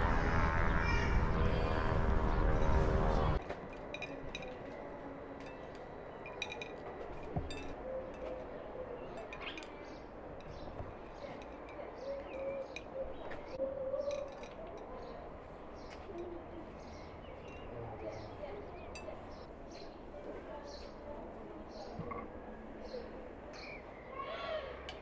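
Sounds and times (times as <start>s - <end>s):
small birds chirping: 3.2s - 25.0s
glassware clinking: 3.6s - 4.8s, 5.4s - 8.4s, 9.2s - 12.9s, 14.0s - 14.9s, 17.4s - 17.7s.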